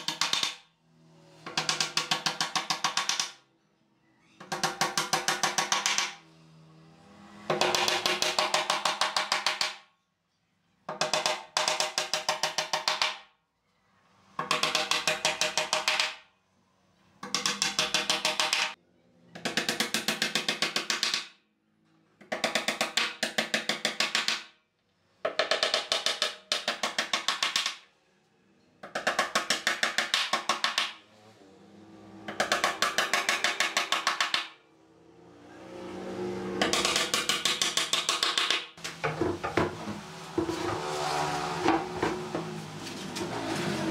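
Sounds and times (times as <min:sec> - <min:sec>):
hammer driving nails into wood: 0:00.0 - 0:00.6, 0:01.5 - 0:03.4, 0:04.4 - 0:06.2, 0:07.5 - 0:09.9, 0:10.9 - 0:13.3, 0:14.4 - 0:16.2, 0:17.2 - 0:18.8, 0:19.4 - 0:21.4, 0:22.2 - 0:24.6, 0:25.2 - 0:27.9, 0:28.8 - 0:31.0, 0:32.3 - 0:34.6, 0:36.6 - 0:39.0.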